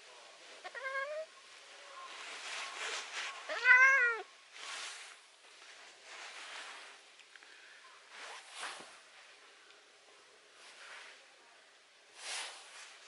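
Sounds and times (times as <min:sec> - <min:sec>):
soft rustling: 0:00.0 - 0:13.0
cat meowing: 0:00.6 - 0:01.3, 0:03.5 - 0:04.3.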